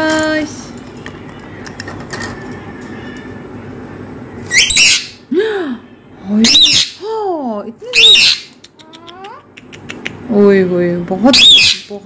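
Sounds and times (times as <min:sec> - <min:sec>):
parakeets screeching: 0:04.4 - 0:05.3, 0:06.4 - 0:07.0, 0:07.9 - 0:09.0, 0:11.3 - 0:12.0
parakeet call rising and falling: 0:04.5 - 0:05.2.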